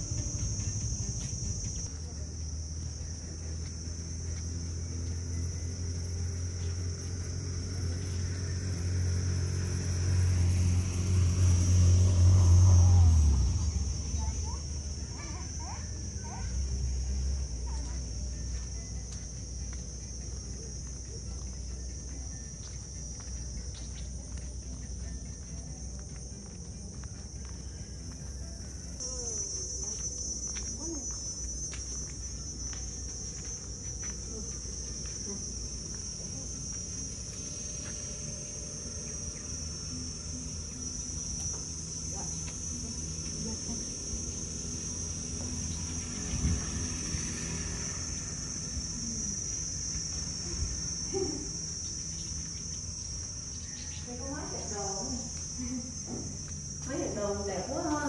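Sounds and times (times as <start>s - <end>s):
low background hum: 0.0s - 58.0s
insects shrilling: 26.8s - 58.0s.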